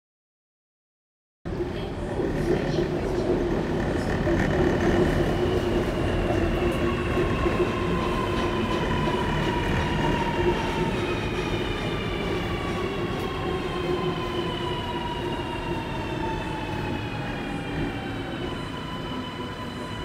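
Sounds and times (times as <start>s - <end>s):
wheels rumbling on rail: 1.5s - 14.3s.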